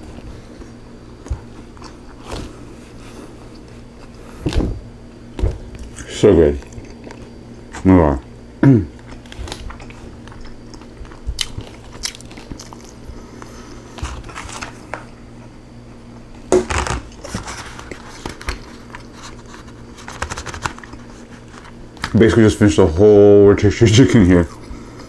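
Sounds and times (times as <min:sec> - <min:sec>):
chewing and crunching: 0:00.1 - 0:04.6, 0:05.3 - 0:08.3, 0:08.9 - 0:15.3, 0:17.1 - 0:22.2.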